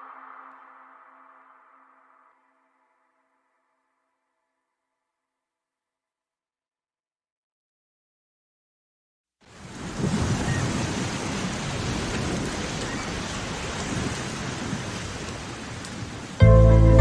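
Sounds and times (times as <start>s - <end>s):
wind buffeting microphone: 9.6s - 16.4s.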